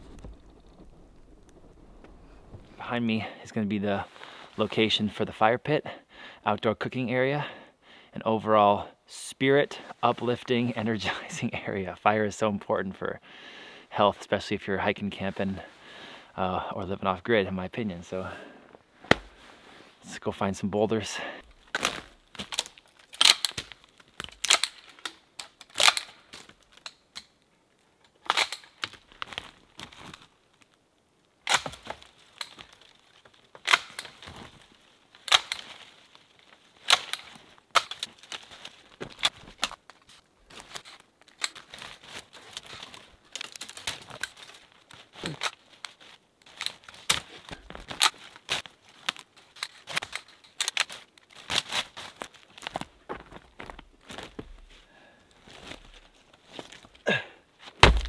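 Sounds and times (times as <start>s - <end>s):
cut twigs rustling and crackling: 0.0s - 2.8s, 21.2s - 58.0s
loppers snapping branches: 33.6s - 34.6s, 35.2s - 35.8s, 36.8s - 38.3s.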